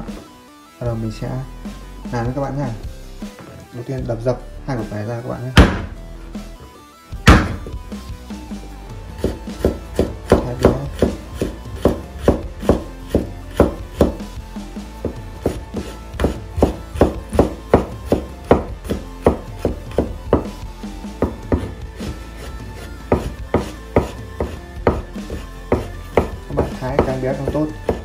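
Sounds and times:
knife chopping on wooden board: 5.6 - 6.0, 7.2 - 7.8, 9.2 - 14.2, 15.0 - 20.6, 21.2 - 28.0
knife smashing garlic: 9.2 - 14.2, 15.0 - 20.5, 23.1 - 28.0.

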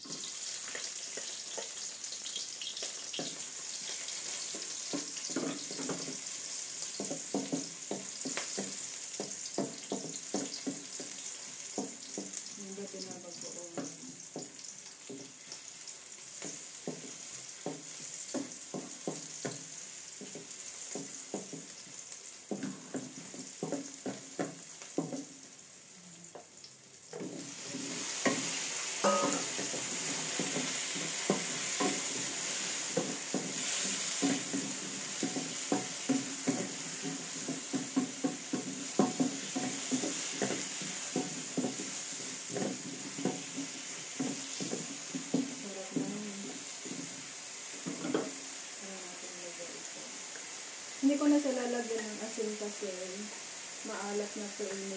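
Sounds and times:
food sizzling in oil: 0.0 - 54.9
spatula scraping a wok: 0.1 - 12.5, 27.1 - 48.4.

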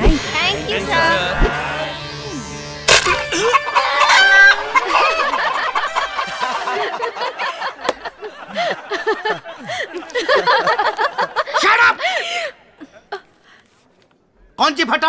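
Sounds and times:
hens clucking: 3.3 - 6.7
crow-like call: 3.5 - 4.9.

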